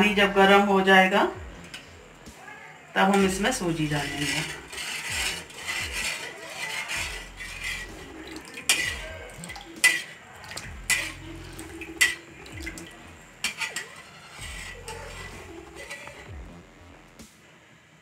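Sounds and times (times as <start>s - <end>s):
wooden spatula stirring water: 3.1s - 17.2s.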